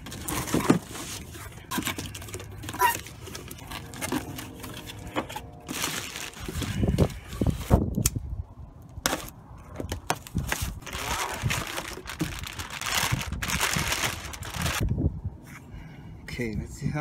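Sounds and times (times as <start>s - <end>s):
foil and paper crinkling: 0.0s - 7.7s, 10.3s - 14.9s.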